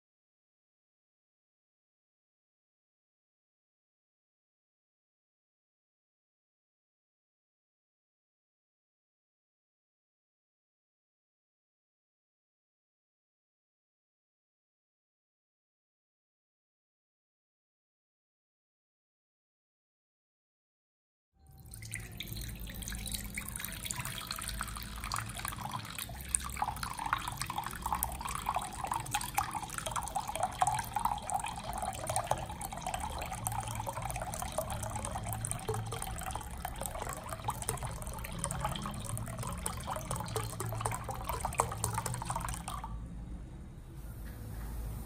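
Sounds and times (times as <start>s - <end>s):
milk pouring into a jug: 21.6s - 42.9s.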